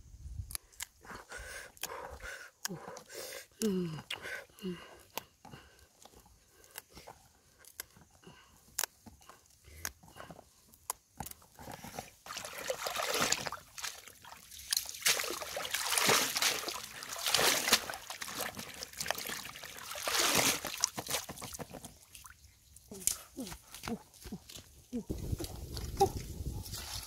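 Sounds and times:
water sloshing and splashing: 0:12.2 - 0:22.6
water running off basket: 0:12.3 - 0:21.5.

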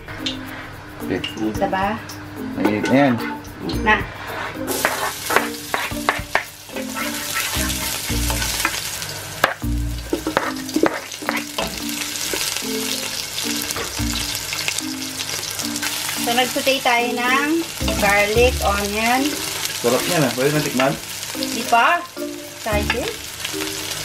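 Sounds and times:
pork sizzling in a pot: 0:00.0 - 0:24.0
spoon stirring and scraping: 0:04.2 - 0:08.8.

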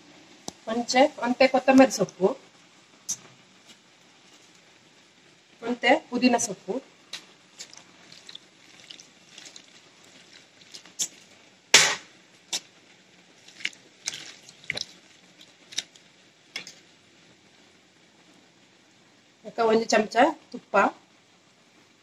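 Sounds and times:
soft wet rustles of leaves: 0:00.0 - 0:22.0
sharp knock: 0:11.7 - 0:12.1.

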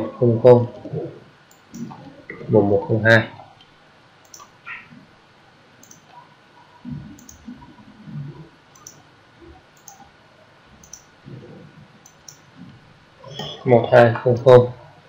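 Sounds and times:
computer mouse clicking: 0:01.5 - 0:02.0, 0:04.2 - 0:04.5, 0:05.8 - 0:06.2, 0:07.2 - 0:07.5, 0:08.7 - 0:09.0, 0:09.8 - 0:10.0, 0:10.8 - 0:11.1, 0:12.0 - 0:12.5.

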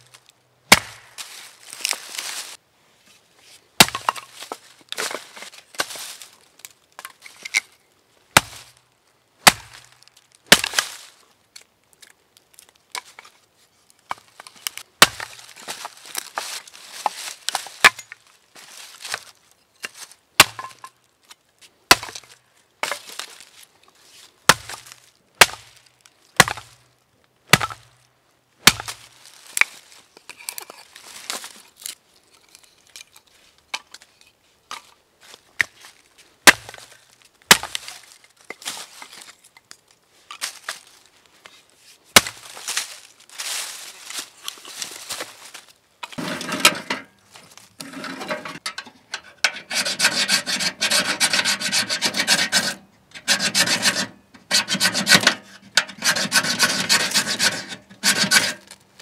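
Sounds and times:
axe chopping wood: 0:00.7 - 0:01.3, 0:03.8 - 0:05.2, 0:08.4 - 0:08.7, 0:09.4 - 0:09.9, 0:10.5 - 0:10.9, 0:15.0 - 0:16.2, 0:17.5 - 0:18.1, 0:20.4 - 0:20.8, 0:21.9 - 0:23.2, 0:24.5 - 0:25.7, 0:26.4 - 0:26.8, 0:27.5 - 0:27.9, 0:28.6 - 0:29.1, 0:36.4 - 0:36.9, 0:37.5 - 0:37.9, 0:42.2 - 0:42.5.

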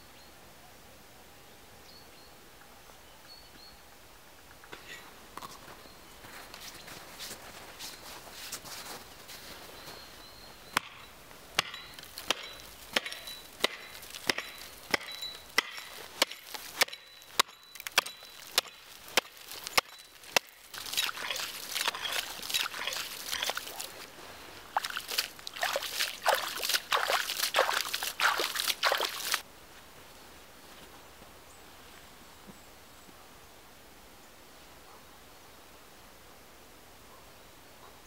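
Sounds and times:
hatchet chopping ice: 0:10.8 - 0:24.0
splashing chops in slush: 0:12.0 - 0:24.1, 0:24.7 - 0:29.4.

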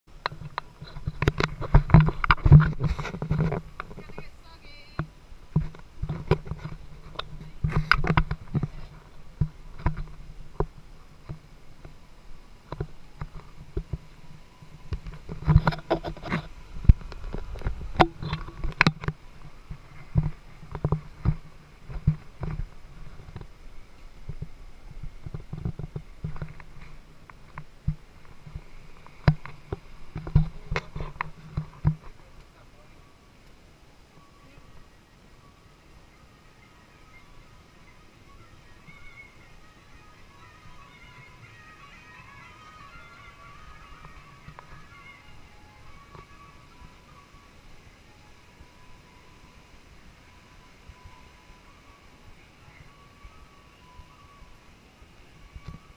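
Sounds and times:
footsteps on paved path: 0:00.2 - 0:12.0, 0:12.8 - 0:32.6.

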